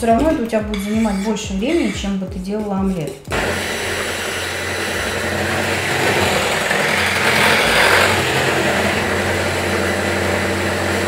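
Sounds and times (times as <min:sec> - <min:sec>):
electric hand mixer whisking batter: 0:03.3 - 0:11.0.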